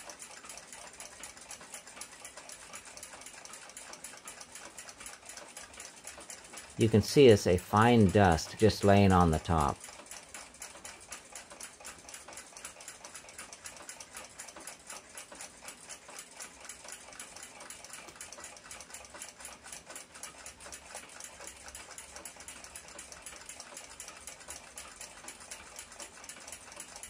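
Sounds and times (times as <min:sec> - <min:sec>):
faint mechanical ticking: 0:00.0 - 0:27.0.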